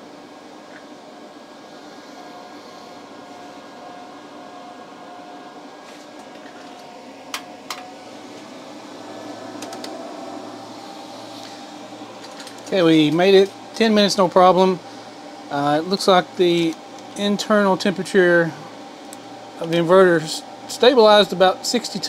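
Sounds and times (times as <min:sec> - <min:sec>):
inverter cooling fans running: 0:00.0 - 0:22.0.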